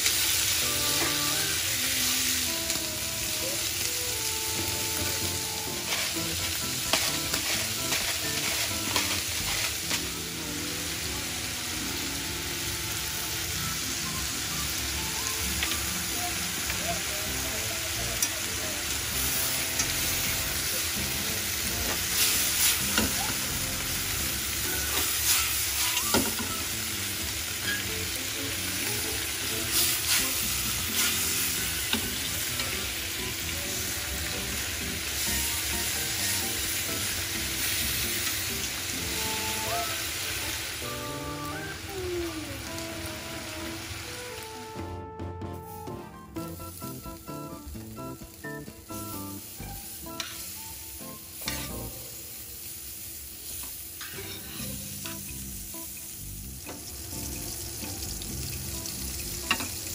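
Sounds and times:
squid and onions sizzling in a pan: 0.0s - 59.9s
wooden spatula scraping a pan: 5.8s - 10.0s.

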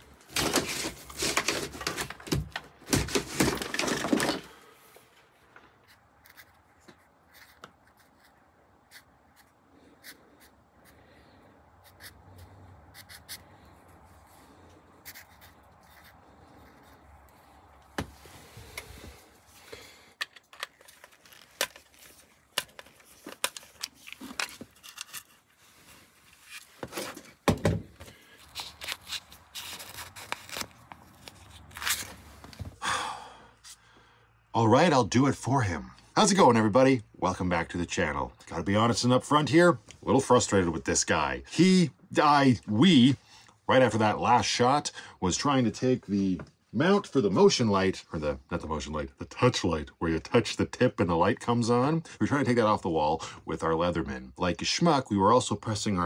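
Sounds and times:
wire rustling and scraping: 0.0s - 2.3s, 20.3s - 27.4s.

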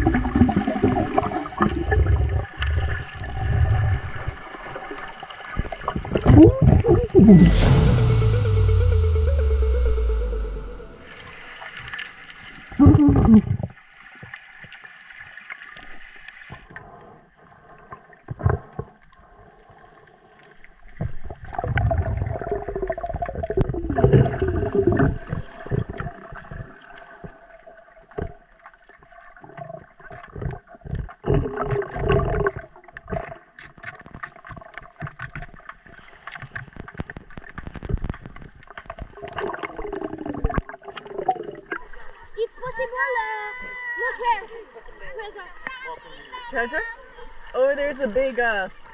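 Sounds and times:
faint steady tone: 7.3s - 12.0s
water gurgling and sloshing: 12.5s - 48.9s.

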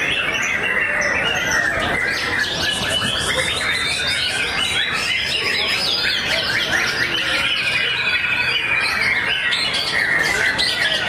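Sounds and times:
songbirds singing whistled phrases: 0.0s - 11.0s.

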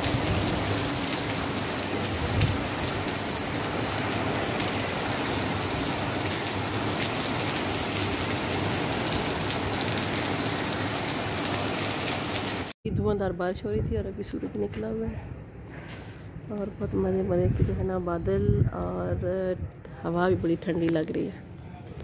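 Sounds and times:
heavy rain falling: 0.0s - 12.8s.

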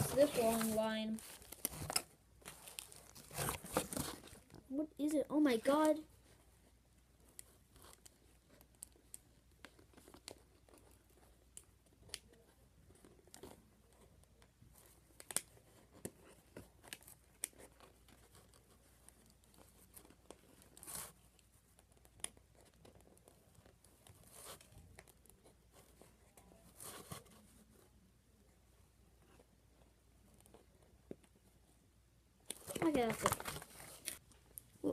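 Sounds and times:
plastic and cardboard packaging crinkling: 0.0s - 4.7s, 32.6s - 34.9s.

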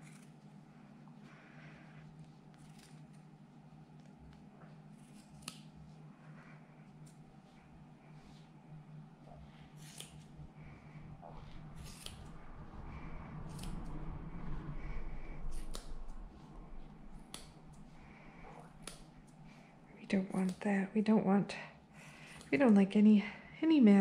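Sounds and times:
scissors snipping wool: 0.0s - 0.4s, 2.5s - 3.2s, 4.0s - 5.8s, 9.8s - 10.4s, 11.8s - 12.3s, 13.5s - 13.7s, 17.2s - 17.8s, 18.6s - 19.4s, 20.2s - 20.7s.

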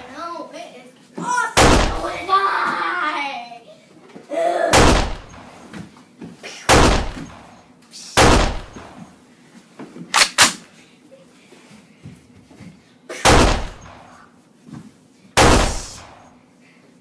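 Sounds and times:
gunshots: 1.6s - 2.2s, 4.8s - 5.5s, 6.7s - 7.6s, 8.2s - 9.0s, 13.2s - 14.2s, 15.4s - 16.3s.

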